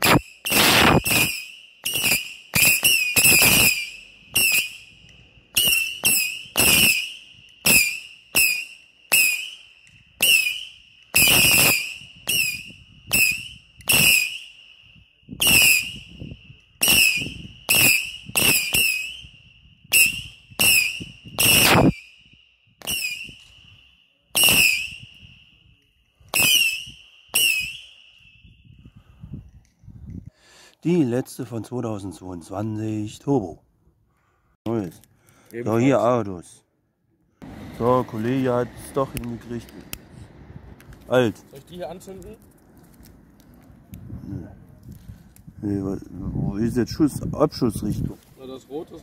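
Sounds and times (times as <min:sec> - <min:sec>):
firework shots whistling and banging: 0:00.0 - 0:28.8.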